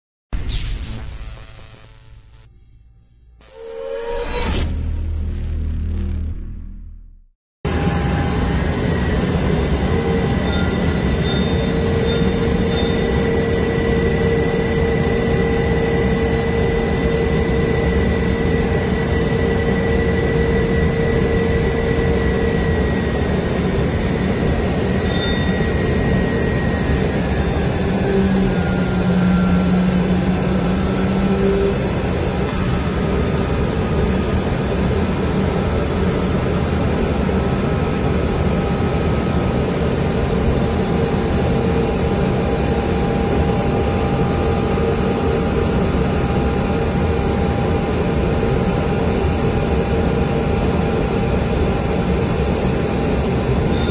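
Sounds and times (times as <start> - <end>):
whining engine tones: 1.9 - 37.5
jet engine and airflow noise: 7.7 - 53.9.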